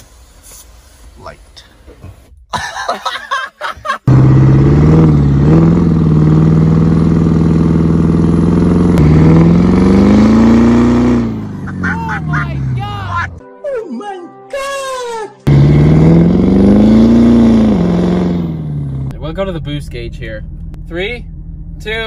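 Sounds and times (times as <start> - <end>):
diesel truck engine revving: 4.0 - 13.4, 15.5 - 22.0.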